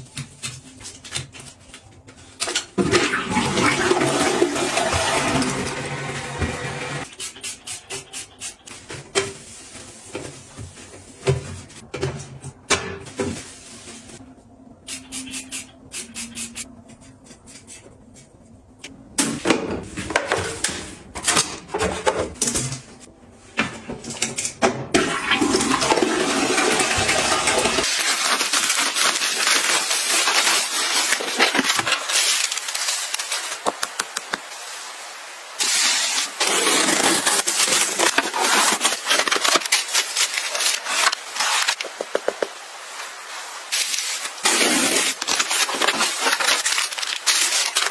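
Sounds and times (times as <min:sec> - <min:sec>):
toilet flushing: 0:02.8 - 0:07.0, 0:24.9 - 0:28.0
plastic mailer and cardboard crinkling: 0:27.8 - 0:34.7, 0:35.6 - 0:47.9.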